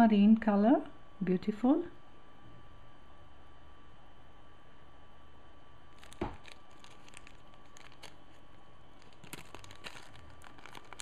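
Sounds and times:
plastic bag crinkling: 5.9 - 11.0.

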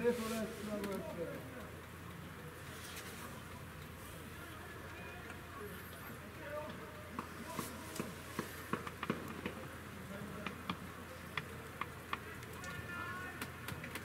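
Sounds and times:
distant shouts: 12.2 - 14.0.

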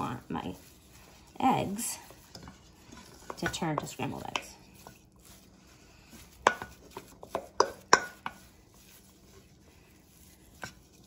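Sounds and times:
wooden spoon knocking on metal bowl: 2.0 - 5.0, 6.3 - 8.4.

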